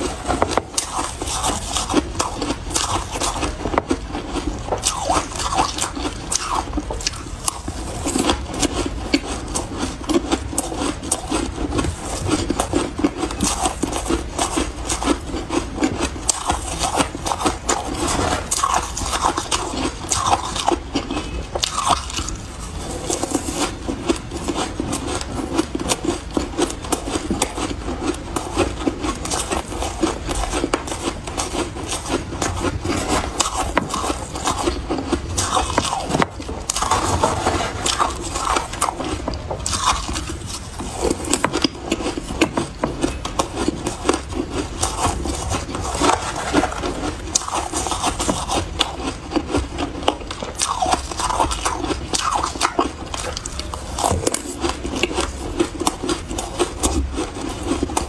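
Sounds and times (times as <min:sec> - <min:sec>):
chewing shaved ice: 0:00.0 - 0:58.0
spoon scraping ice from tray: 0:44.8 - 0:48.5.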